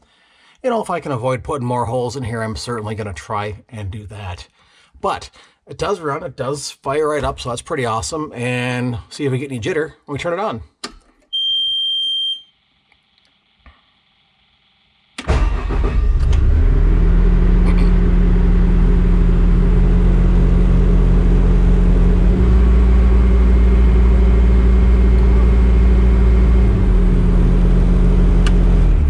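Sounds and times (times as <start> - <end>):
diesel engine starting and running: 15.2 - 29.0.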